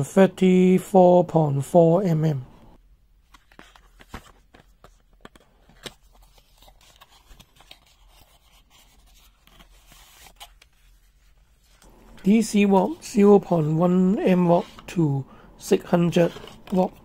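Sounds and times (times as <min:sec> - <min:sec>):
cardboard box and paper rustling: 0:03.3 - 0:11.8.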